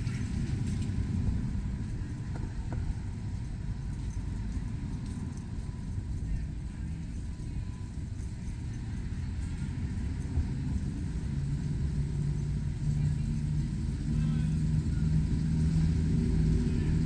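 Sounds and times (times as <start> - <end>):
traffic rumble: 0.0 - 17.0
vehicle engine running: 0.0 - 17.0.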